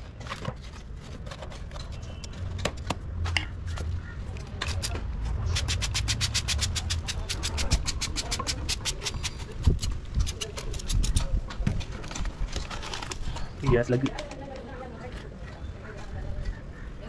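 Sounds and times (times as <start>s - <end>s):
spray bottle squirting: 4.6s - 11.2s
trowel scraping soil: 4.6s - 11.3s.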